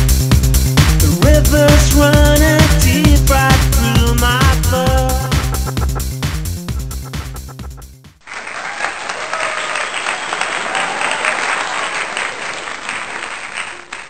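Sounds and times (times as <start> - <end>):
electronic dance music: 0.0 - 8.2
applause: 8.2 - 14.0.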